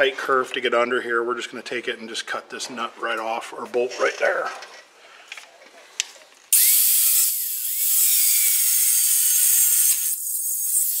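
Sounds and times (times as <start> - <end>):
angle grinder cutting steel: 6.6 - 11.0.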